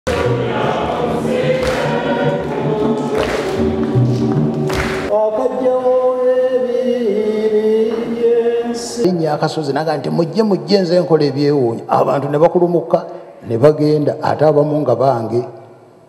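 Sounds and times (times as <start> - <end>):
choir singing a hymn: 0.1 - 9.3.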